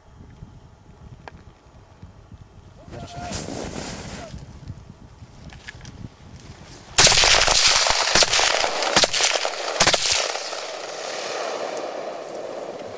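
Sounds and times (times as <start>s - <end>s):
noisy wash after shots: 7.0s - 12.9s
rifle shots: 7.0s - 12.9s.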